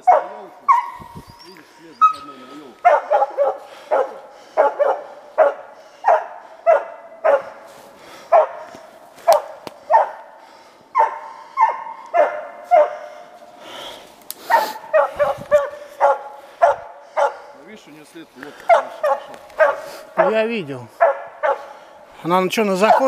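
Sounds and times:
dog barking: 0.0s - 1.2s, 2.8s - 13.4s, 14.5s - 17.5s, 18.6s - 21.9s, 22.8s - 23.0s.

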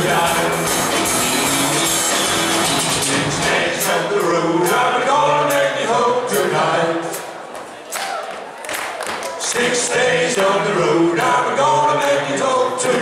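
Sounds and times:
country-rock band playing: 0.0s - 3.8s
person singing: 0.0s - 7.2s, 9.4s - 13.0s.

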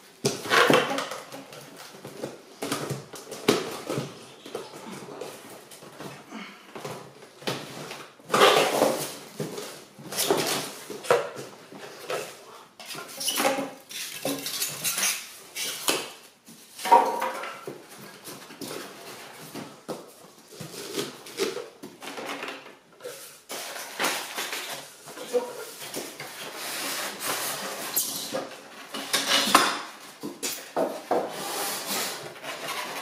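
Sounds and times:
cardboard and foam rustling: 22.8s - 28.8s.

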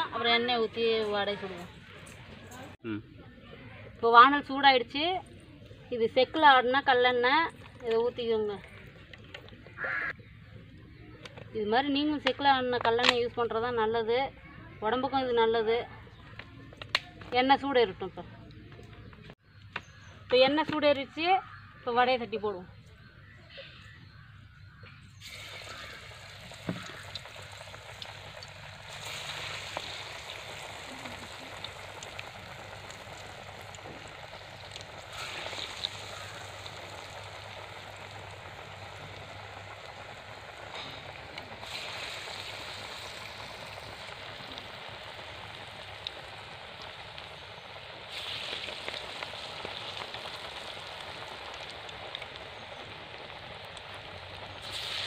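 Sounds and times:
patties deep-frying in hot oil: 6.0s - 10.2s, 25.1s - 55.0s.

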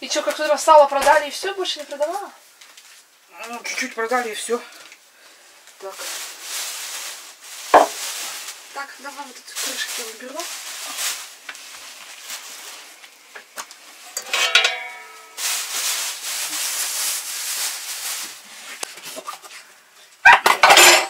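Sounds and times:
rustling and rubbing: 5.8s - 13.2s, 13.8s - 19.7s
metal pot lids knocking: 14.2s - 15.3s
metal clank with ring: 14.2s - 15.4s.

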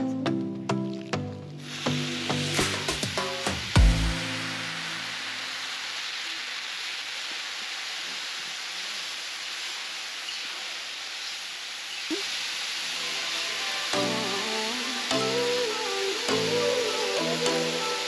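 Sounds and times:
rice sizzling in butter: 1.6s - 18.0s.

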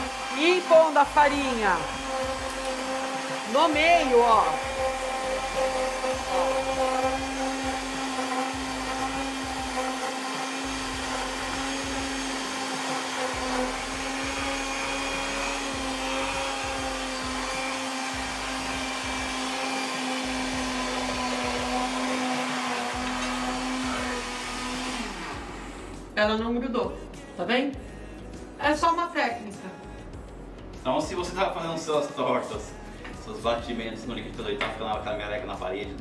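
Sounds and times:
kitchen blender running: 0.0s - 26.2s.

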